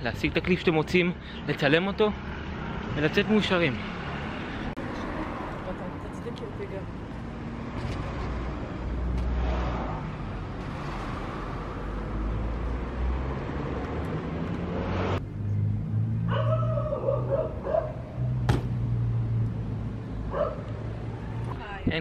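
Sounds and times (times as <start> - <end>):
dog barking: 16.3 - 18.0, 20.3 - 20.7
bike landing bang: 18.4 - 18.8.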